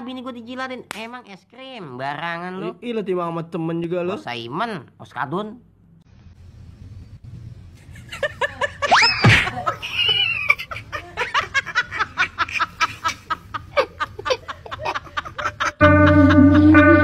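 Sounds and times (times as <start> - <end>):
person laughing hard: 8.2 - 17.0.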